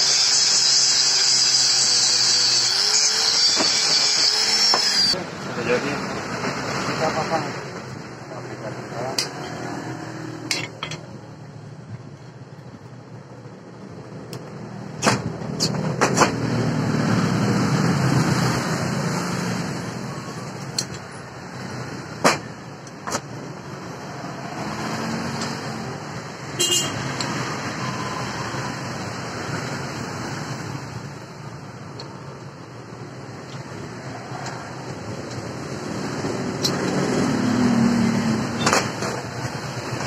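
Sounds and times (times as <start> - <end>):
steel parts knocking and clinking: 10.5 - 11.1.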